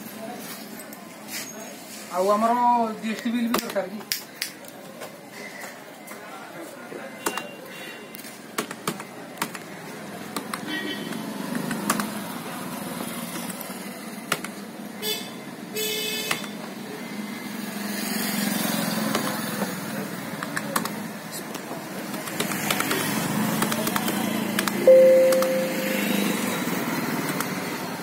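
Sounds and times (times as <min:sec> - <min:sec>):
street traffic: 0:00.0 - 0:28.0
motorcycles passing: 0:16.8 - 0:28.0
short high tones: 0:24.9 - 0:26.5.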